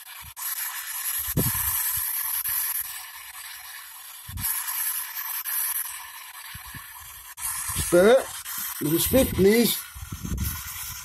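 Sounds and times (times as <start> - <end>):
radio static hiss: 3.5 - 11.0.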